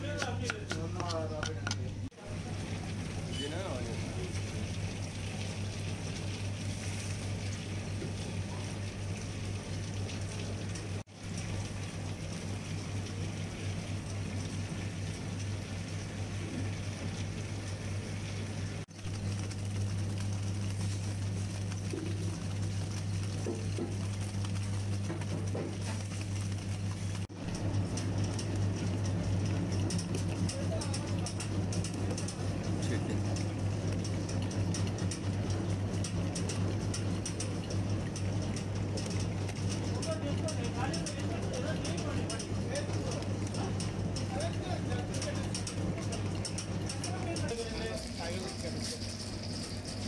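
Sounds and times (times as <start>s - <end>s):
stone wet grinder grinding: 0.0s - 2.0s, 19.0s - 37.6s
low motor hum: 0.0s - 50.0s.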